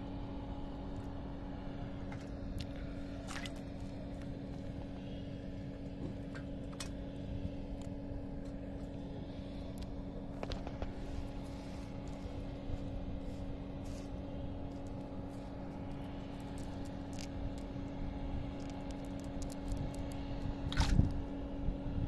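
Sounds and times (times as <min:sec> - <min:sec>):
steady low hum: 0:00.0 - 0:22.0
wet fishing net squishing and scraping: 0:02.4 - 0:04.4, 0:10.4 - 0:17.7.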